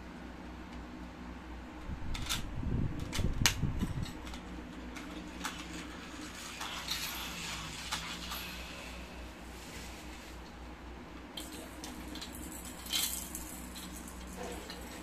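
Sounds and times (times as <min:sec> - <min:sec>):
room fan humming: 0:00.0 - 0:15.0
toy car rolling rumble: 0:03.0 - 0:09.3, 0:11.4 - 0:15.0.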